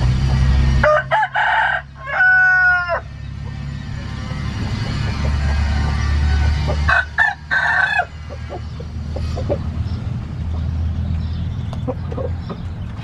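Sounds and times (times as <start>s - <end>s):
steady low hum: 0.0s - 13.0s
rooster crowing: 0.8s - 3.2s, 4.9s - 8.6s.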